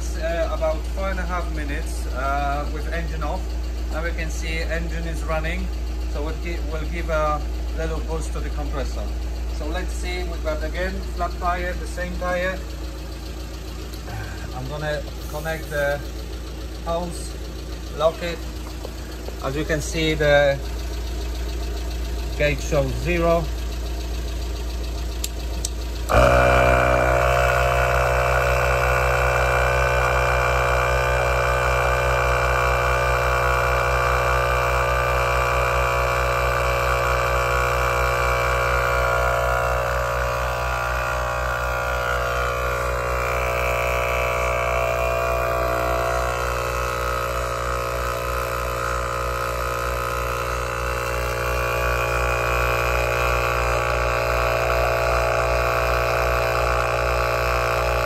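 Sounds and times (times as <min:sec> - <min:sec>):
air compressor running: 0:00.0 - 0:58.0
van engine idling: 0:00.0 - 0:58.0.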